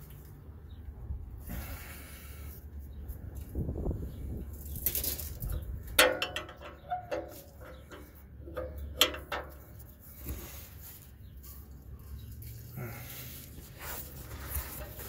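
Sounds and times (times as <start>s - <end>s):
wrench clinking on metal pipe: 6.0s - 9.6s.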